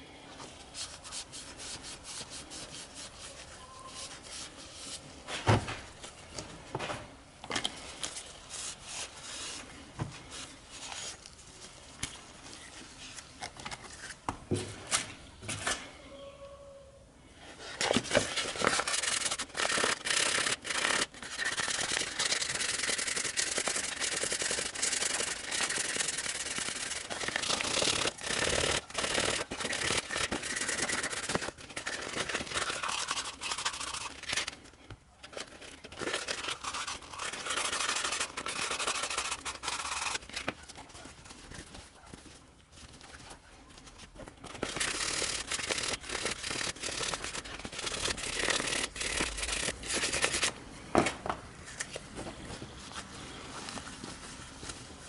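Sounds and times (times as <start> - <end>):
sandpaper rasping on metal: 18.6 - 34.5, 36.0 - 40.2, 44.6 - 50.5.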